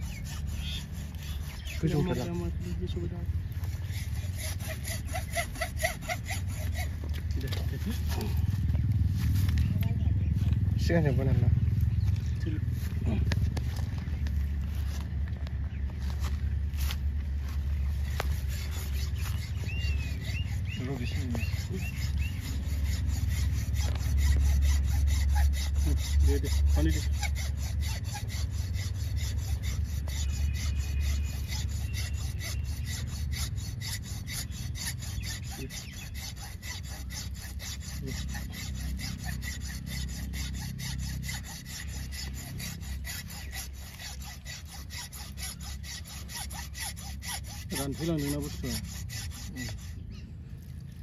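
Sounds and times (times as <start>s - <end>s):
wire saw cutting horn: 0.0s - 8.5s, 17.9s - 50.1s
low rumble: 7.0s - 20.6s.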